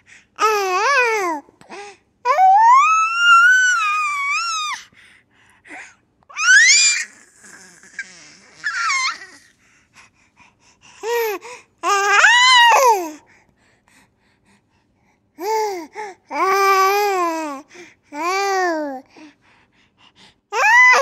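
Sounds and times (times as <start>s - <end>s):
baby squealing with laughter: 6.3s - 9.4s.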